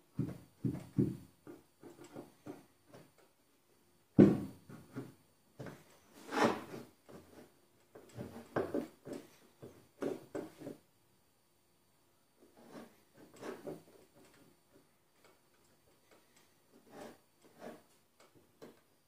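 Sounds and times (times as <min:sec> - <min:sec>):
knocks and scrapes on sheet metal: 0:04.3 - 0:09.4, 0:12.5 - 0:14.3, 0:16.7 - 0:17.9.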